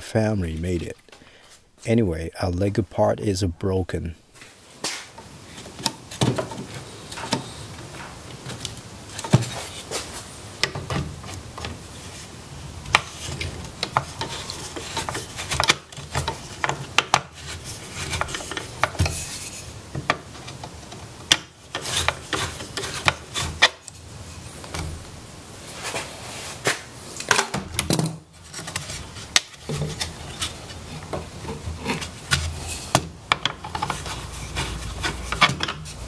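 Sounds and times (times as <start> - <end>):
metal and wood scraping: 4.4 - 25.0, 28.4 - 36.0.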